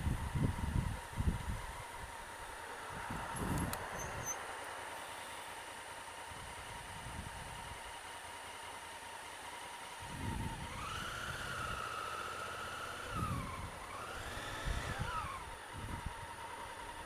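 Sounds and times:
wind buffeting on helmet: 0.0s - 4.4s, 6.4s - 7.8s, 10.0s - 11.9s, 13.1s - 17.0s
motorcycle engine accelerating: 6.3s - 17.0s.

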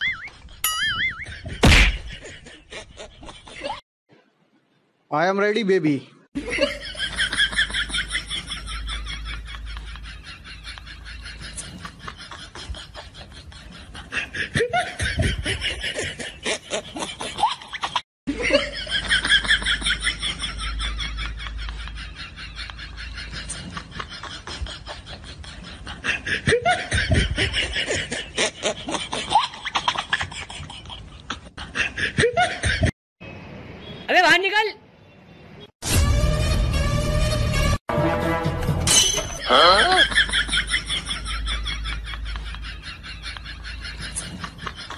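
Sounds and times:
laughter bursts: 39.4s - 44.9s.

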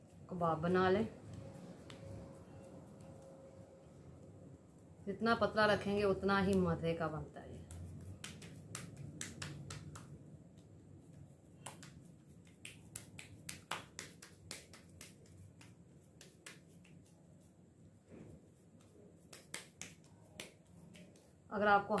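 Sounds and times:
hands patting meat: 7.5s - 17.2s, 18.6s - 22.0s.

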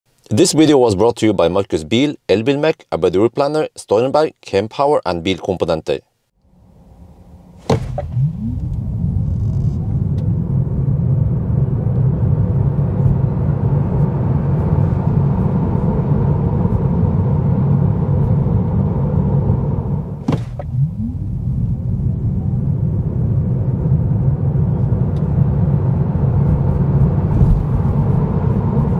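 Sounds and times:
road and tyre rumble: 6.7s - 28.9s.

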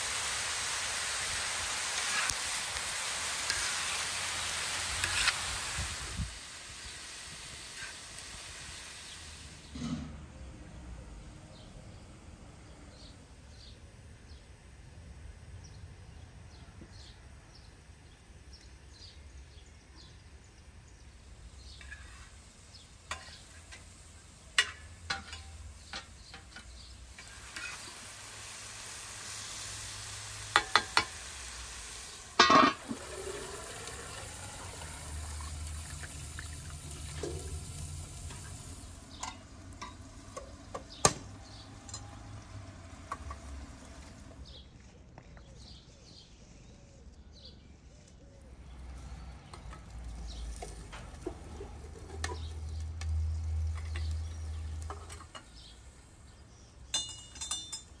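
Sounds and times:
food sizzling in pan: 0.0s - 9.7s, 21.2s - 44.5s, 48.6s - 56.7s
loud metal clank: 9.7s - 10.3s
birds chirping: 30.4s - 58.0s
utensils clinking and knocking: 56.9s - 58.0s.

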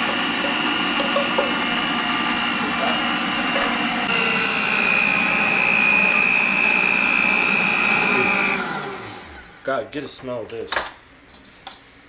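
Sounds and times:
stand mixer motor whine: 0.0s - 9.6s.

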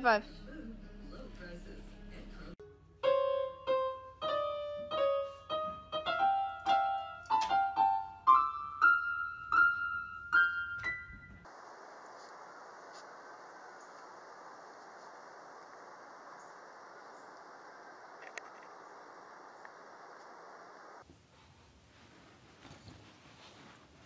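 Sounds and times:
faint steady hiss: 11.2s - 24.0s.

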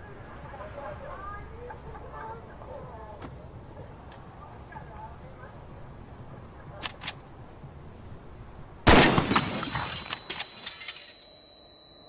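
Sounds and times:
loud shotgun blast: 8.9s - 9.5s
glass shattering and tinkling: 8.9s - 12.0s
high ringing tone: 9.8s - 12.0s.

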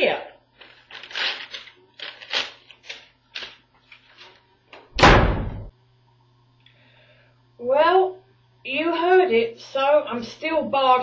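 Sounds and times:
paper tearing: 0.6s - 4.4s
door slamming shut: 4.9s - 5.7s.

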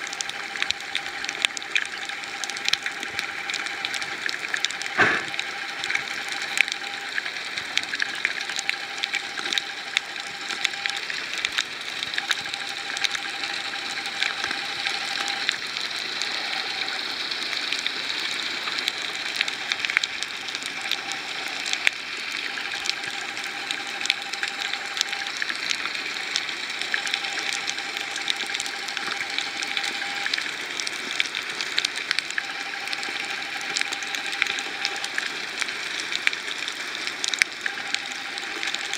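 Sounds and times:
underwater hiss: 5.0s - 5.4s.

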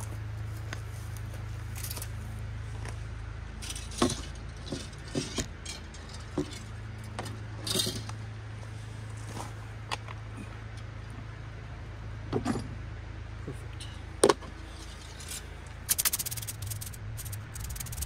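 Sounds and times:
steady low hum: 0.0s - 18.0s
metallic clinks and scrapes: 3.6s - 6.8s, 14.6s - 18.0s.

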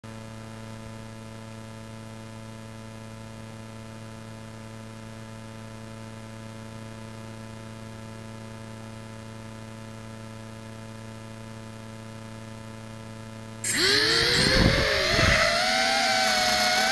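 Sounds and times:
electrical hum: 13.6s - 16.9s.

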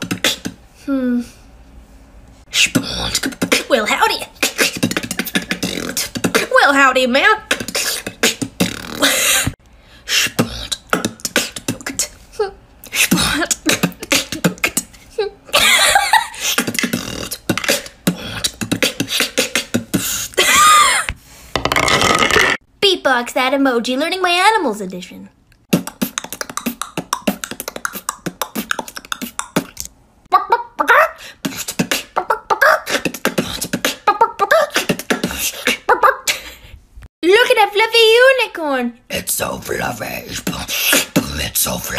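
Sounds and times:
woman beatboxing: 0.0s - 1.3s, 2.5s - 15.4s, 16.4s - 20.4s, 25.7s - 36.6s, 39.4s - 41.9s
pitched vocal sounds: 2.5s - 15.5s, 16.4s - 20.4s, 25.7s - 36.6s, 39.1s - 41.9s.

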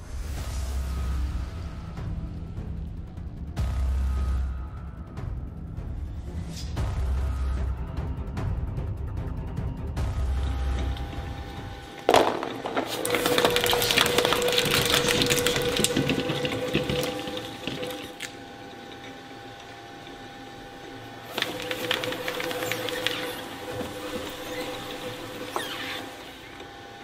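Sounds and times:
shredder motor whine: 10.1s - 27.0s
shredder crunching rubber: 10.6s - 27.0s
loud crack: 12.0s - 18.4s.

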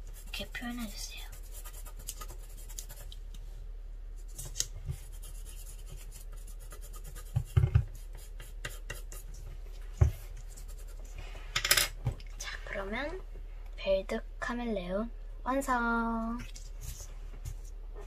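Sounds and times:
pencil scratching on paper: 0.0s - 3.1s, 4.4s - 9.4s, 10.4s - 11.1s.

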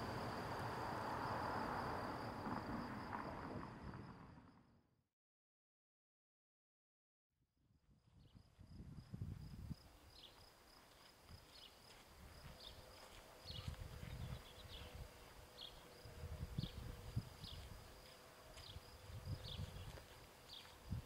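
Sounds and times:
wind rumbling on microphone: 0.0s - 4.5s, 7.9s - 10.2s, 13.4s - 21.0s.

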